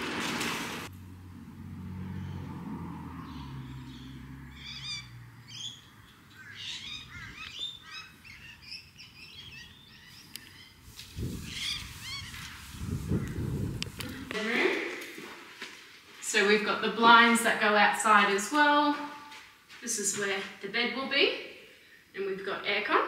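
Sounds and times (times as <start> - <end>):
birds chirping: 2.1 - 14.4.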